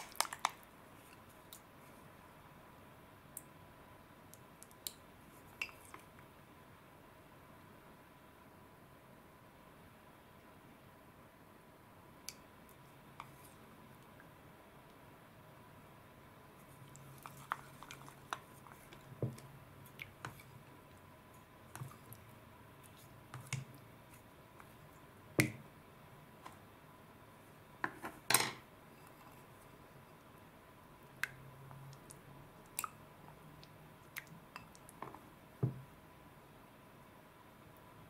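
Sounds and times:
chopsticks tapping bowl: 25.4s - 25.6s.

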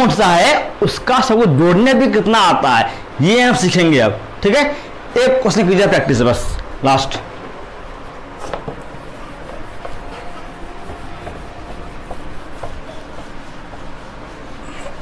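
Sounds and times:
eraser rubbing on whiteboard: 8.4s - 15.0s.

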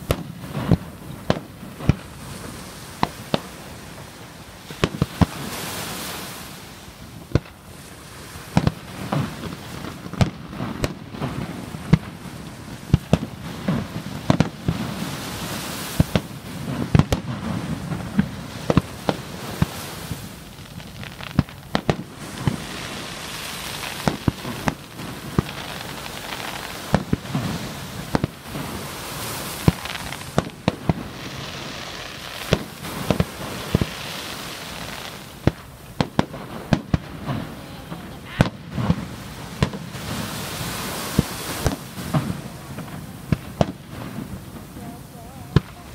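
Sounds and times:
firework shells bursting: 21.0s - 37.6s.

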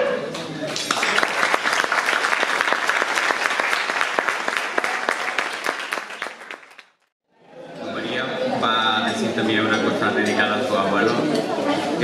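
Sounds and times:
audience applauding: 0.6s - 7.1s.

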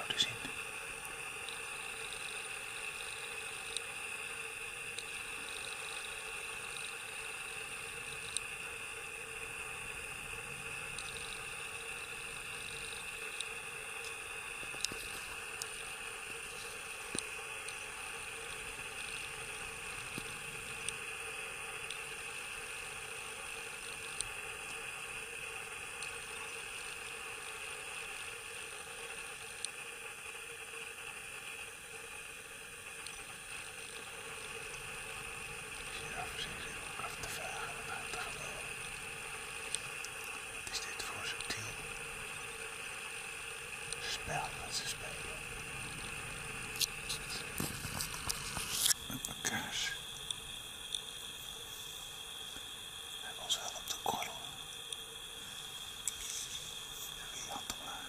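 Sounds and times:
outdoor hiss and hum: 0.0s - 58.0s
faint clicks: 8.0s - 8.5s, 10.8s - 21.1s, 21.8s - 24.9s, 33.0s - 44.2s.

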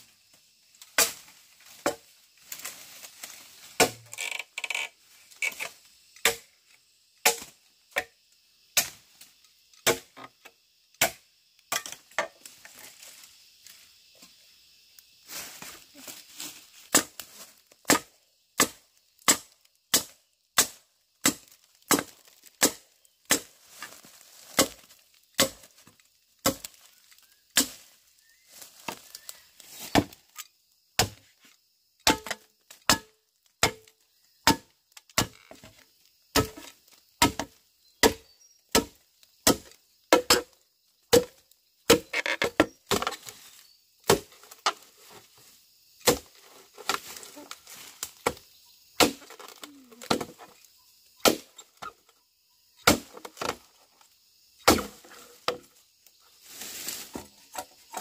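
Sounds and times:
blade chopping into wood: 17.9s - 23.5s, 25.4s - 25.7s, 36.3s - 40.5s, 46.0s - 46.3s, 54.6s - 55.6s.

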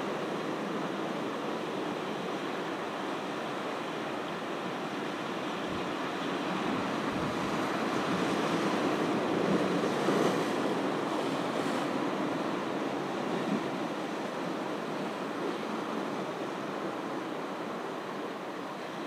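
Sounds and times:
ocean surf washing on beach: 0.0s - 19.0s.

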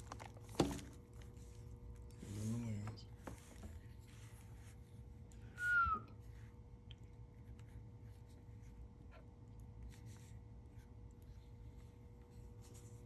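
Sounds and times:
falling whistle: 5.5s - 6.2s.

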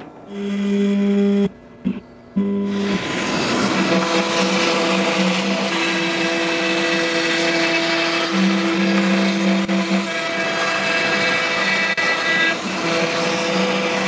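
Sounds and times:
router spindle milling wood: 2.7s - 14.0s.

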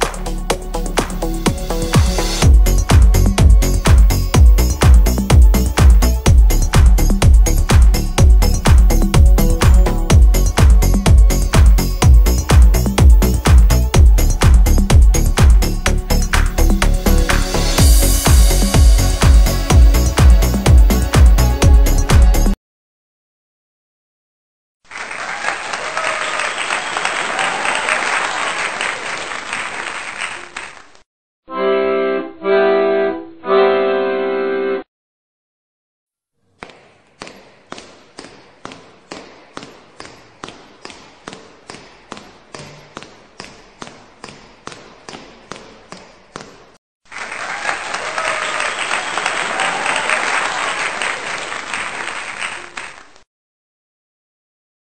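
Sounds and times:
applause: 24.9s - 31.0s, 47.1s - 53.3s
held keyboard chords: 31.5s - 34.8s.

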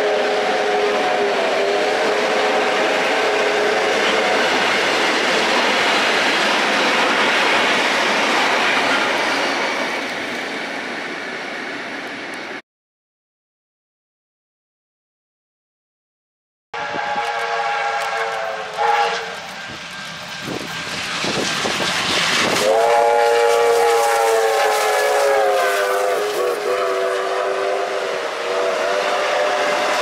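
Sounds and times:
steam locomotive whistle blasts: 0.0s - 4.8s, 16.8s - 30.0s
passing train rushing: 0.0s - 12.6s, 16.8s - 30.0s.

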